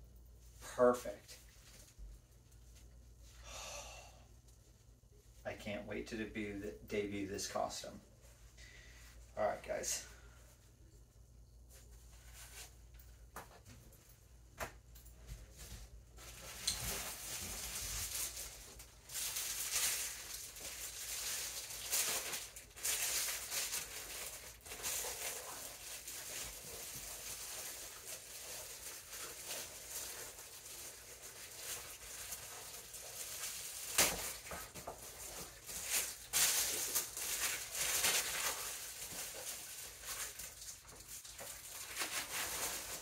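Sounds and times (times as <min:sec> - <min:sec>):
plastic packaging crinkling: 0:16.2 - 0:43.0.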